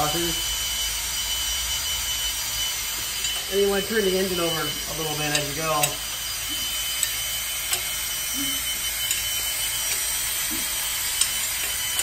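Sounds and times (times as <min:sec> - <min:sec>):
cordless drill running under load: 0:00.0 - 0:12.0.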